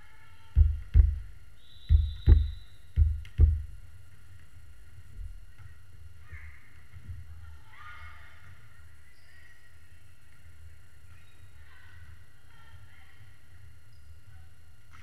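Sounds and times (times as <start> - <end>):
ball bouncing on wooden floor: 0.6 - 1.3, 1.9 - 3.7.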